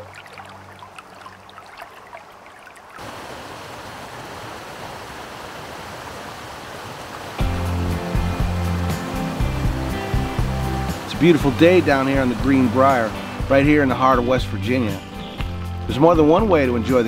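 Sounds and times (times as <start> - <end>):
gentle water sounds: 0.0 - 16.6
river rushing over rapids: 1.6 - 13.5
music: 7.4 - 17.0.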